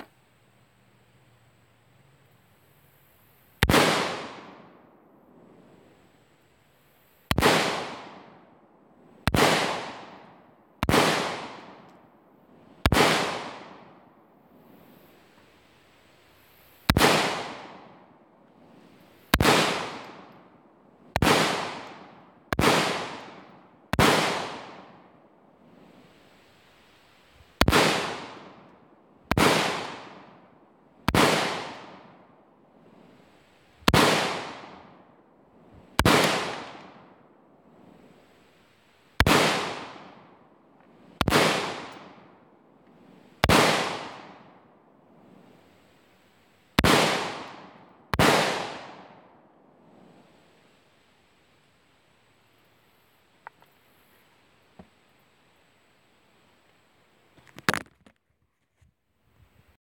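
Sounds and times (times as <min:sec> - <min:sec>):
gunshots with echo: 0:19.3 - 0:20.0, 0:33.9 - 0:34.8, 0:36.0 - 0:37.1, 0:39.2 - 0:40.1, 0:41.2 - 0:42.3, 0:46.8 - 0:49.1.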